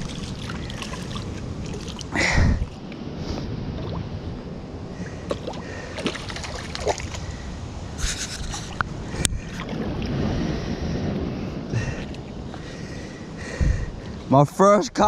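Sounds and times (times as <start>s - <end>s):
small waves washing over rocks: 0.0s - 2.2s
wind rumbling on microphone: 0.0s - 15.0s.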